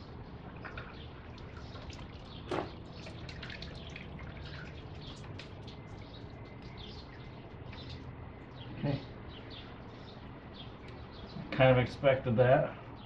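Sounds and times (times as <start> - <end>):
liquid dripping and trickling: 0.4 - 8.2.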